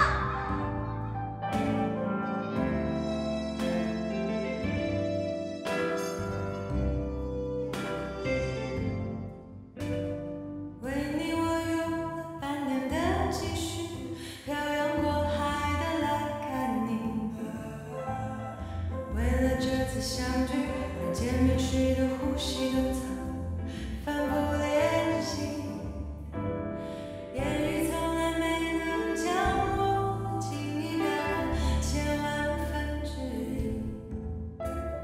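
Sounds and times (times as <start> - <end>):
woman singing into microphone: 0.0 - 0.8, 10.8 - 25.9, 27.4 - 34.0
instrumental backing with bass: 0.0 - 35.0.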